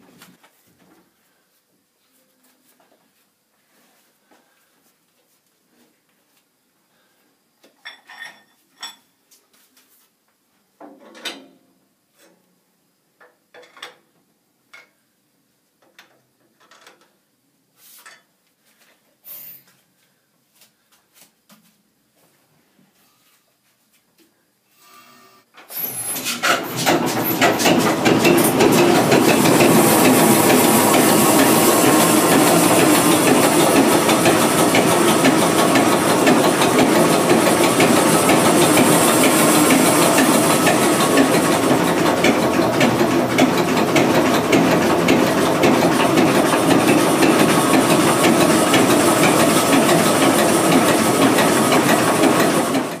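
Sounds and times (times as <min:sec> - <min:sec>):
diesel engine running with clatter: 0:26.4 - 0:53.0.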